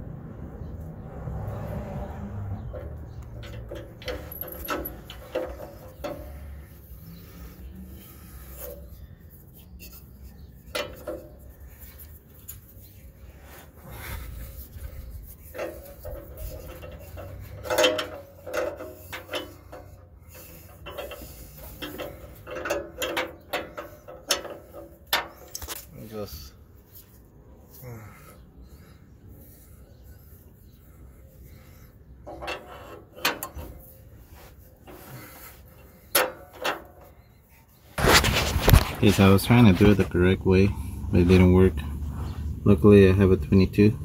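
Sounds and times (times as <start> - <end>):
metal knocks: 2.7 - 6.5, 15.6 - 20.0.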